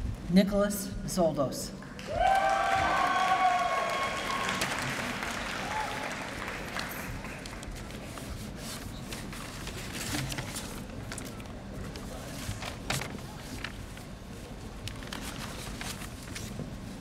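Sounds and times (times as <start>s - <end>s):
audience applauding: 2.0s - 7.9s.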